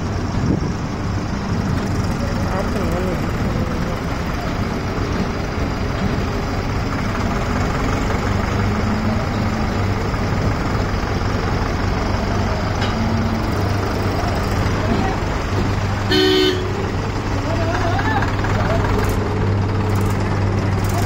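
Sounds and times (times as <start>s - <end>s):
tractor diesel engine running: 0.0s - 21.0s.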